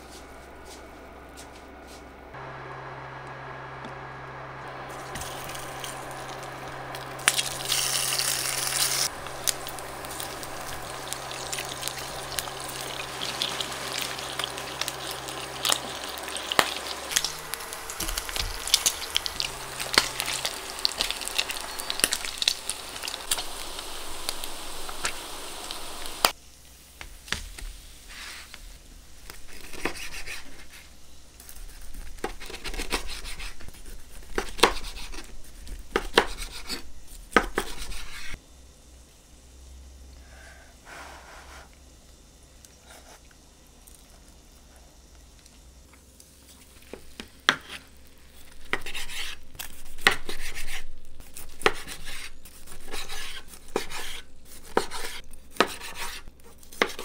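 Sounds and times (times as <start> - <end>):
pork sizzling in hot oil: 4.8 - 31.4.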